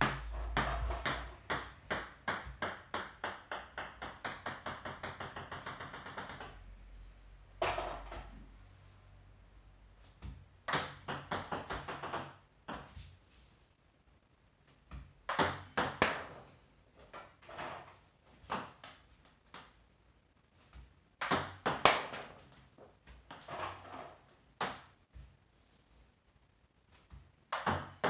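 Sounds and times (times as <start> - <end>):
ball bouncing on table: 7.6 - 8.4, 14.9 - 16.4, 21.2 - 22.5, 27.5 - 28.0.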